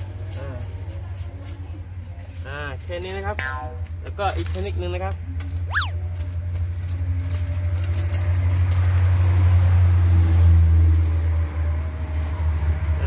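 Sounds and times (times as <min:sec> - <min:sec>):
paper seed packet crinkling: 0:05.4 - 0:09.3.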